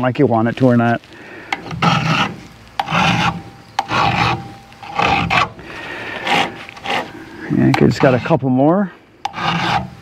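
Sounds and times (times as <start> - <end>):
file rasping on chain: 1.6 - 5.6, 6.2 - 8.4, 9.2 - 10.0.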